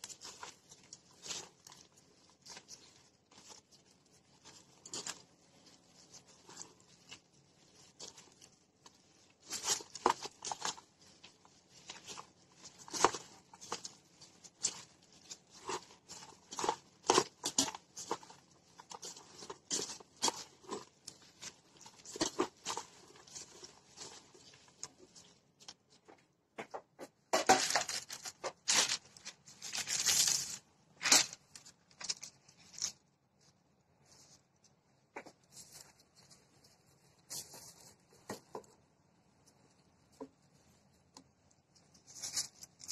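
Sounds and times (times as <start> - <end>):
sticky rice being pressed: 0.0 - 34.0
plastic glove crinkling: 0.0 - 42.9.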